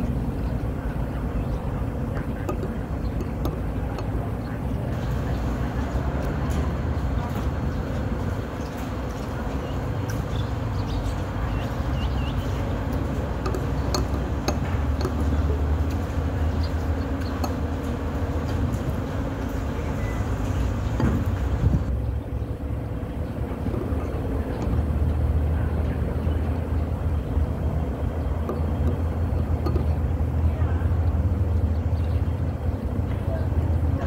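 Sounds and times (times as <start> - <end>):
low background rumble: 0.0 - 34.0
spoon clicking on ceramic bowl: 13.4 - 15.2, 29.6 - 29.9.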